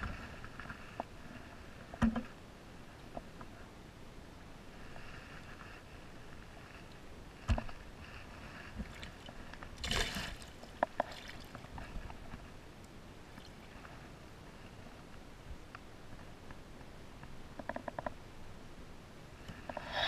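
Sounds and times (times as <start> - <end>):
water lapping against rocks: 8.2 - 12.1.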